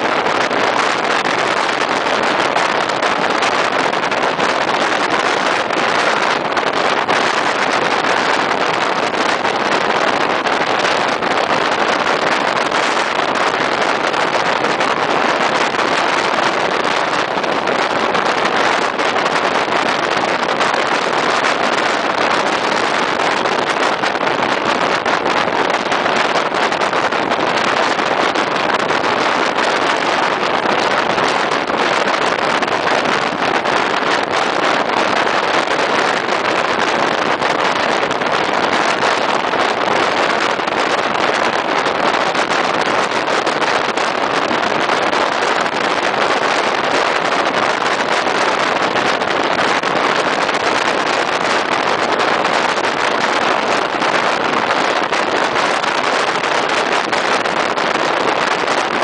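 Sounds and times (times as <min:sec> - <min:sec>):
wind rushing: 0:00.0 - 0:59.0.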